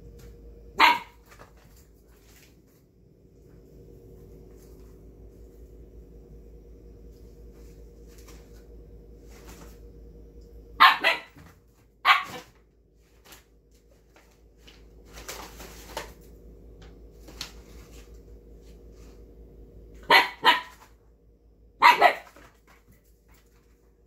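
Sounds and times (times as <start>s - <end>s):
puppy barking: 0.8s - 1.4s, 10.8s - 12.6s, 20.0s - 21.0s, 21.8s - 22.5s.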